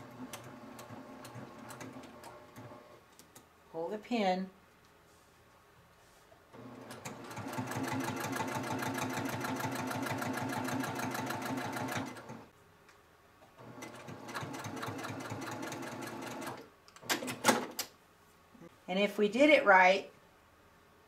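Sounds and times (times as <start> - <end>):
sewing machine stitching: 0.0 - 3.0, 6.6 - 12.5, 13.6 - 17.8.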